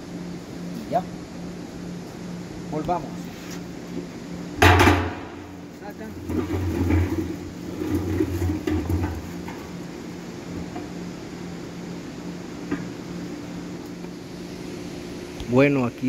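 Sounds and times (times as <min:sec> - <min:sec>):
steady machine hum: 0:00.0 - 0:16.0
sharp knock: 0:04.6 - 0:05.4
plastic drum rustling and bumping: 0:06.1 - 0:09.7.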